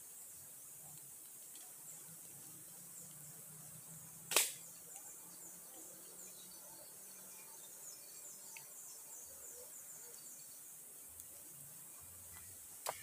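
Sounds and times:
insects chirping: 0.0s - 13.0s
sharp crack: 4.3s - 4.7s.

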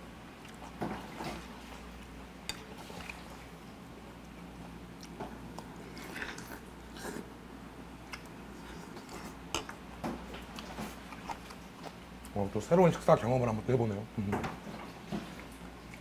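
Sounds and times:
person chewing: 0.4s - 0.8s, 4.2s - 7.3s, 8.0s - 12.4s.

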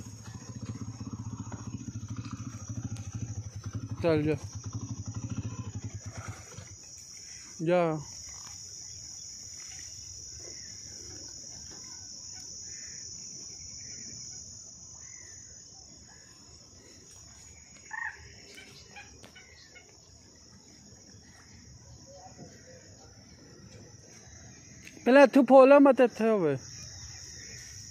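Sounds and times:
bird calls: 0.0s - 25.1s, 26.6s - 27.9s
insects chirring: 0.0s - 27.9s.

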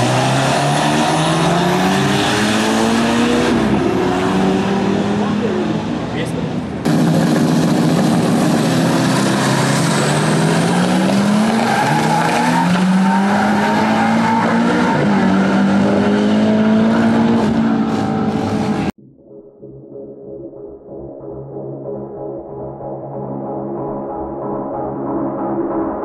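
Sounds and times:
car engines at full throttle: 0.0s - 19.0s.

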